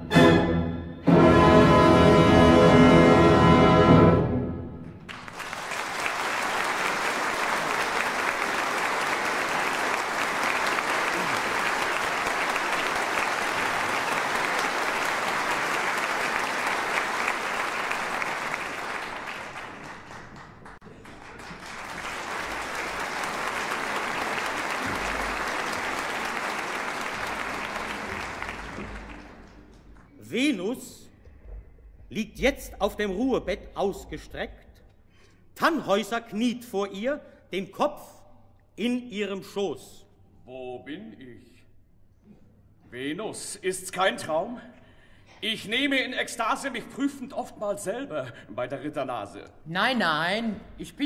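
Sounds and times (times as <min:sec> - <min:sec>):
audience applauding: 0:05.0 - 0:30.2.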